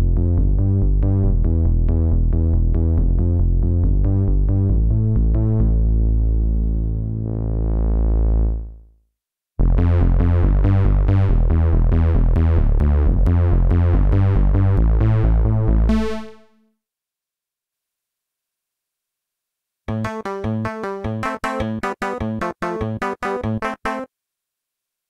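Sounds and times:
quick repeated bass notes: 0:00.0 - 0:08.8, 0:09.6 - 0:16.4
synth bass line: 0:00.0 - 0:08.9, 0:09.6 - 0:16.4.

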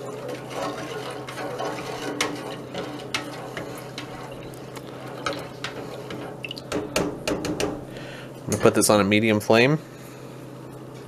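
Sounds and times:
water sloshing in a pot: 0:00.0 - 0:08.0.

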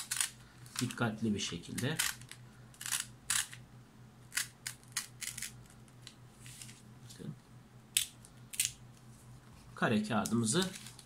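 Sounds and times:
paper ripping and crinkling: 0:10.5 - 0:11.0.

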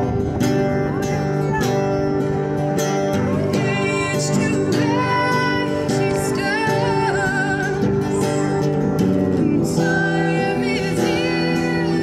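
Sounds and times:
acoustic guitar strumming: 0:00.0 - 0:12.0
woman singing: 0:03.4 - 0:08.3, 0:09.4 - 0:12.0.

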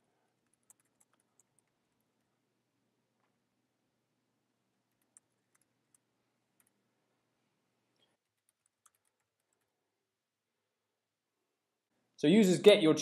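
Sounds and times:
faint low hum: 0:00.0 - 0:13.0
computer keyboard typing: 0:00.4 - 0:02.0, 0:04.9 - 0:06.8, 0:08.0 - 0:09.8.

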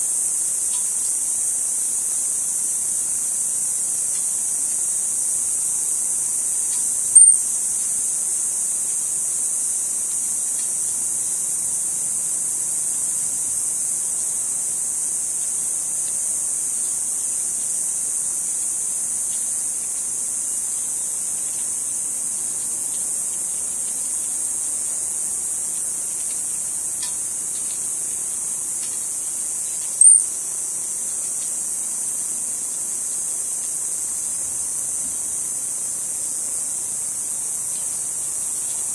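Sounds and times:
insects droning: 0:00.0 - 0:38.9
sharp high chirps: 0:07.2 - 0:07.5, 0:30.0 - 0:30.4.

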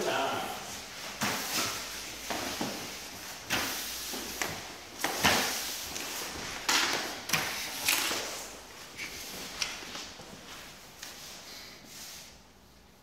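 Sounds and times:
sharp knocks echoing in garage: 0:01.2 - 0:05.7, 0:06.5 - 0:08.4.

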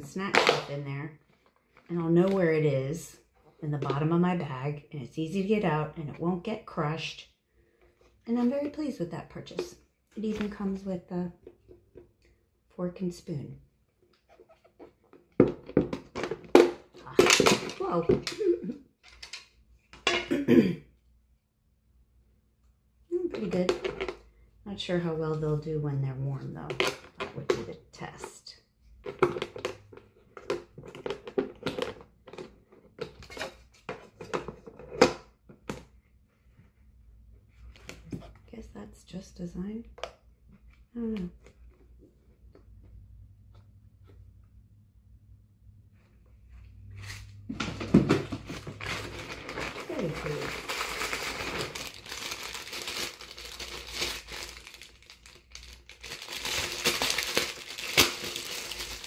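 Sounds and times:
plastic packaging crinkling: 0:48.3 - 0:59.0.

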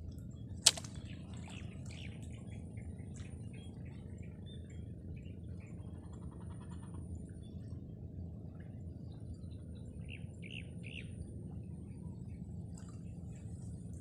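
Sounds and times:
sharp click: 0:00.6 - 0:01.0.

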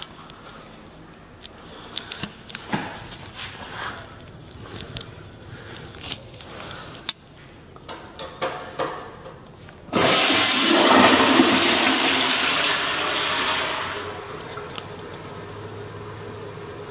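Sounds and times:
toilet flushing: 0:09.9 - 0:16.9.

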